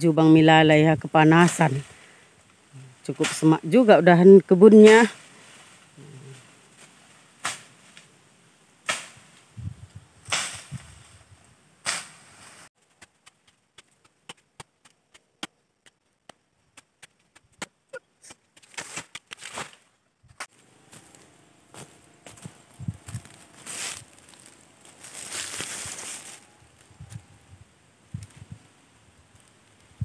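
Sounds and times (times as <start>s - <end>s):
machete slashing brush: 7.4s - 7.8s, 8.8s - 9.3s, 10.2s - 10.9s, 11.8s - 12.6s, 18.6s - 19.8s, 21.0s - 26.4s.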